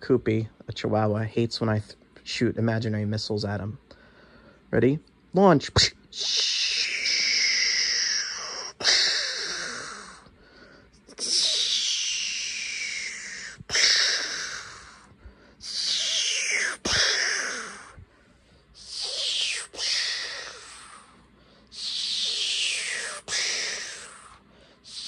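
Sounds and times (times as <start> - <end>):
man making missile whoosh: 11.1 - 15.0, 15.6 - 18.0, 18.8 - 21.1.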